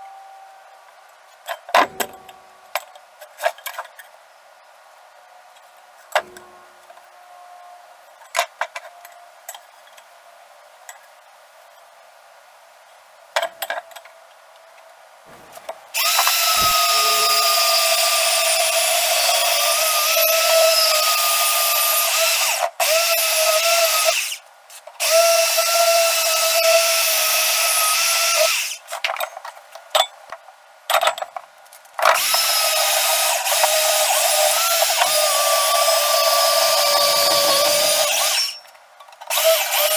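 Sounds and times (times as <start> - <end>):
band saw cutting steel tubing: 15.3 - 24.4, 32.2 - 38.6.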